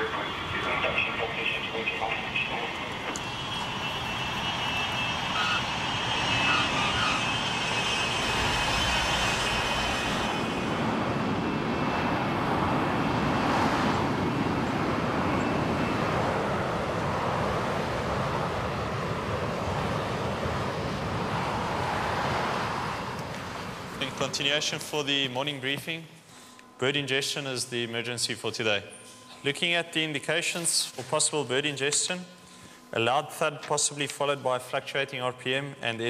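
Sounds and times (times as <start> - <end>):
jet engine rush: 0.0 - 25.3
high jet whine: 0.0 - 35.8.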